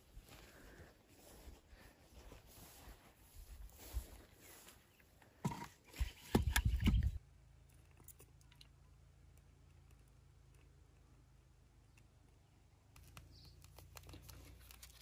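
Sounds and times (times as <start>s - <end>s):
firewood knocking and scraping: 5.4s - 7.2s.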